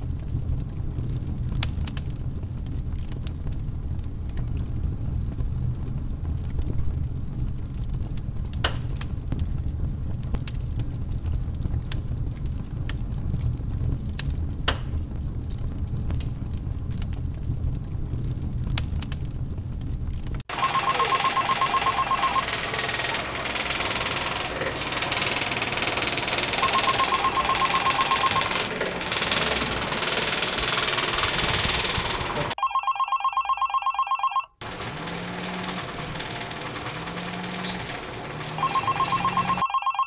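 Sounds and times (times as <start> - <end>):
phone ringtone trilling: 20.5 - 22.6, 26.6 - 28.7, 32.6 - 34.6, 38.6 - 40.0
loud steady noise: 20.5 - 32.6.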